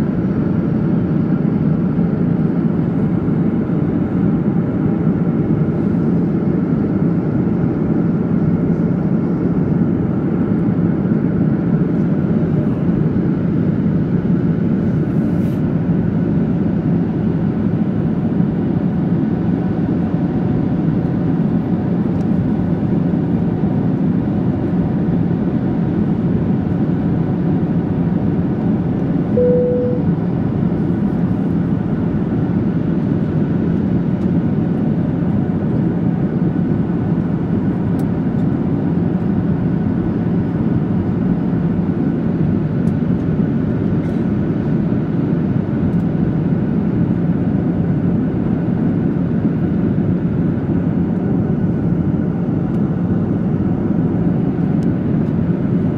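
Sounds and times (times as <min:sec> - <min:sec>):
jet engines droning: 0:16.0 - 0:55.9
short single tone: 0:29.3 - 0:30.3
low steady hum: 0:29.3 - 0:31.5.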